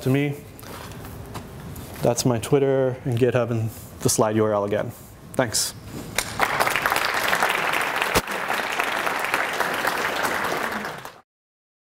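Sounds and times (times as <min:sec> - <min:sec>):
audience applauding: 0:06.2 - 0:11.2.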